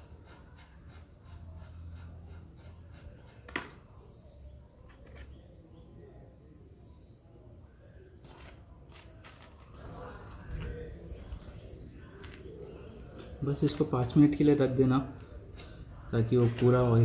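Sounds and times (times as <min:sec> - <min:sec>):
faint bird chirps: 0:01.5 - 0:08.1.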